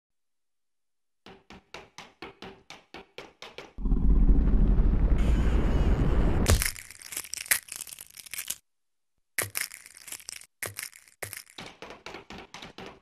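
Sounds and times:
loud low rumble: 0:03.8 - 0:06.4.

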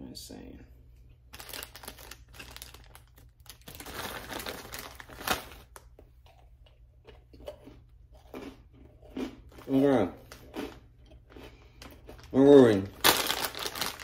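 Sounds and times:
plastic wrapper crinkling: 0:01.3 - 0:05.9, 0:11.9 - 0:14.0.

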